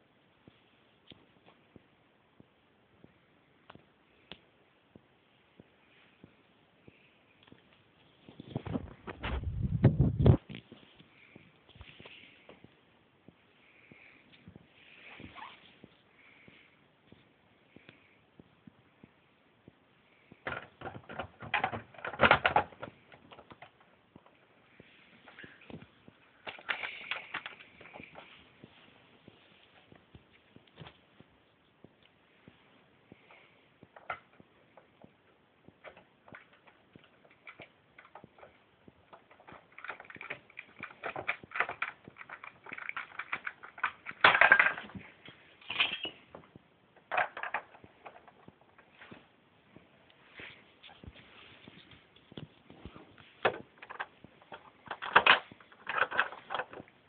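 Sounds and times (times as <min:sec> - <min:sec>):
small sharp clicks and clatters: 0:20.3 - 0:28.4, 0:33.1 - 0:46.3, 0:51.8 - 0:57.0.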